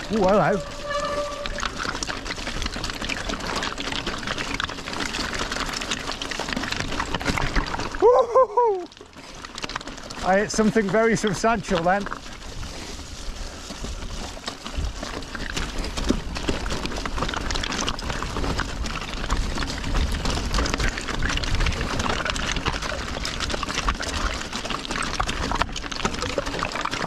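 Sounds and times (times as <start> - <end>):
bike rattling over bumps: 0.0 - 8.4, 9.0 - 27.0
tyres crunching over stones: 0.0 - 27.0
wind rumble on microphone: 12.1 - 26.5.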